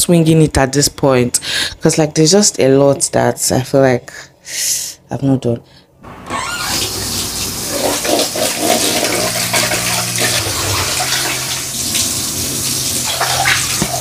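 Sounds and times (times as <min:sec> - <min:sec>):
container rinsed splashing: 0:06.2 - 0:14.0
tap water into steel sink: 0:13.0 - 0:14.0.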